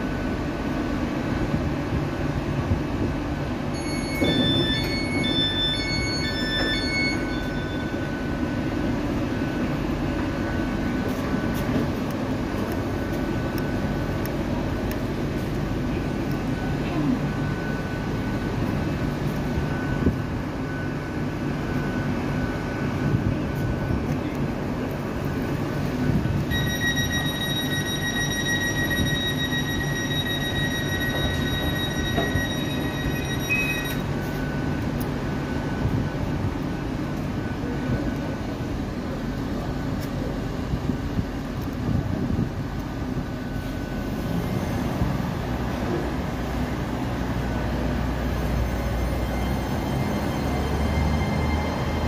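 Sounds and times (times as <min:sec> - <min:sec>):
train diesel engines humming: 0:00.0 - 0:52.0
high-pitched tone: 0:03.7 - 0:11.6, 0:26.4 - 0:36.4.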